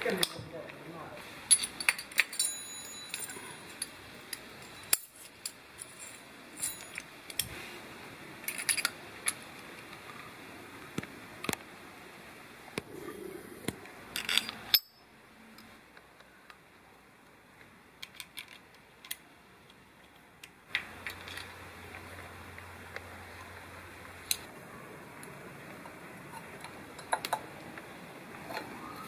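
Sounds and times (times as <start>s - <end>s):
small metal parts clicking: 1.5s - 7.5s, 8.4s - 10.1s, 14.2s - 15.0s, 18.0s - 22.1s.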